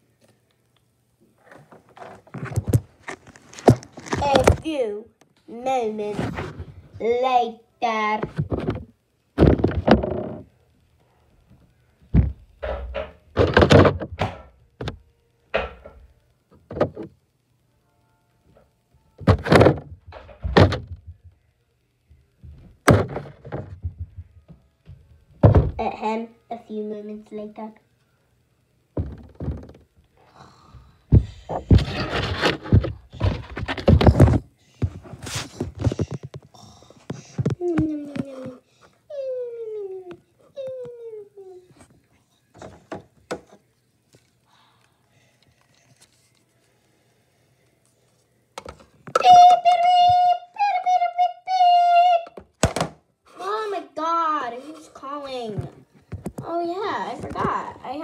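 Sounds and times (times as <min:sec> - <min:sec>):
scraping and rustling: 0:01.4 - 0:04.6, 0:31.2 - 0:36.5
knocks and thumps: 0:03.5 - 0:04.7, 0:08.2 - 0:10.5, 0:12.1 - 0:15.0, 0:19.2 - 0:21.4, 0:22.4 - 0:25.9, 0:29.0 - 0:29.9, 0:31.1 - 0:36.5.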